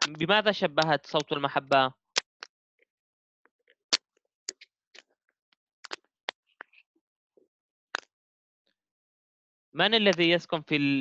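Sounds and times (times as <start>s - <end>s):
sharp clicks and taps: 0.8s - 2.3s.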